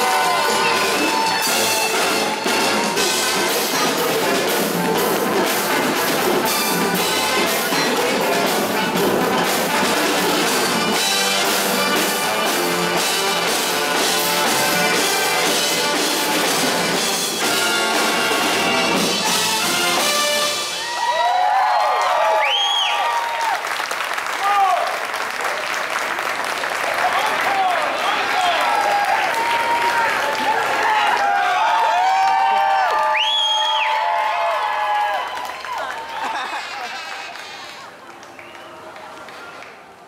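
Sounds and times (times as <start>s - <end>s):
audience whistling and cheering: 0.0s - 2.7s, 20.7s - 25.0s, 27.5s - 39.6s
brass section playing: 0.0s - 20.8s
drum kit beat: 0.0s - 20.8s.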